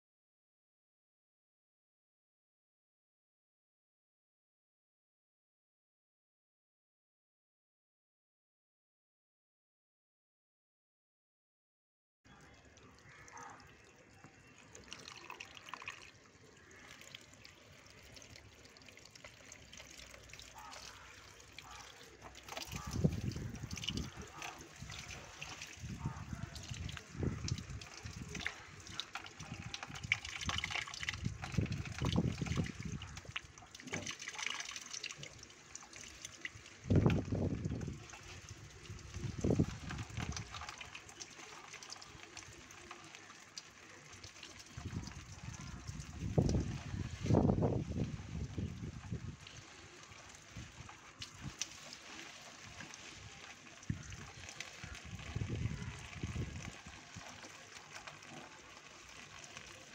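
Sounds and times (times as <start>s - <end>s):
water pouring onto leaves: 12.4s - 59.9s.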